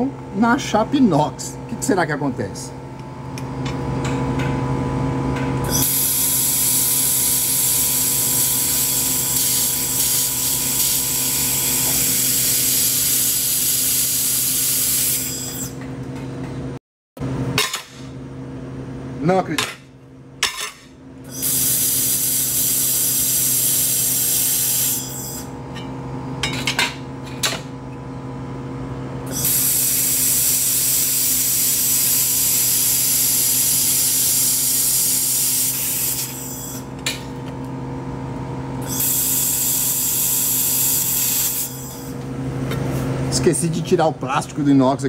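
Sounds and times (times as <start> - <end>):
steady machine hum: 0.0 - 45.0
laser welder hissing: 5.7 - 15.8, 21.3 - 25.5, 29.3 - 36.9, 38.8 - 42.2.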